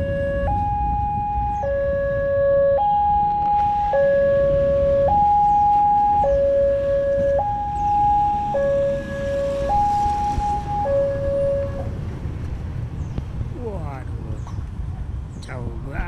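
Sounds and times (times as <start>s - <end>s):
two-tone level crossing alarm: 0.0s - 11.9s.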